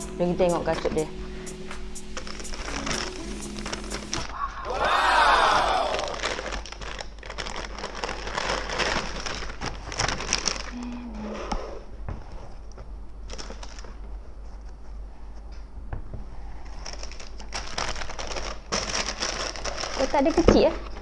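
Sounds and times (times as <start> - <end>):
tissue paper rustling and crinkling: 2.2 - 4.3, 5.5 - 10.8, 13.2 - 14.9, 16.5 - 21.0.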